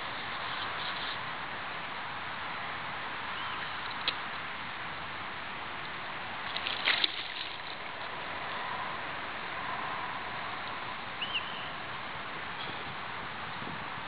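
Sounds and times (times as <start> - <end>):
river water rushing against boat: 1.2 - 10.6.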